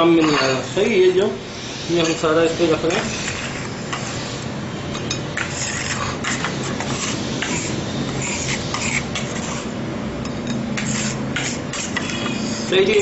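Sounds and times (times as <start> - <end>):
knife scraping on stone countertop: 0.0 - 0.7, 2.8 - 4.3, 4.9 - 9.7, 10.3 - 12.8.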